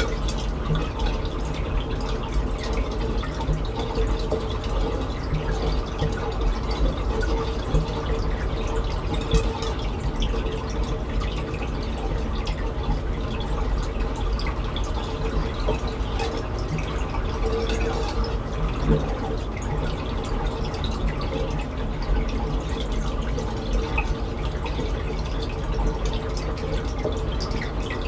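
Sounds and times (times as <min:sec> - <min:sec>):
steady low hum: 0:00.0 - 0:28.0
water trickling and dripping: 0:00.0 - 0:28.0.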